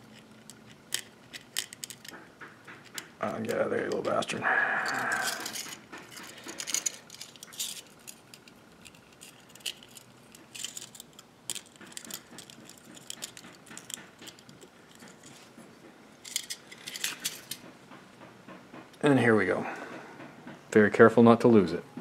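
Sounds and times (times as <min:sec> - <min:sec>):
pick clicking and scraping metal: 0:00.0 - 0:15.4.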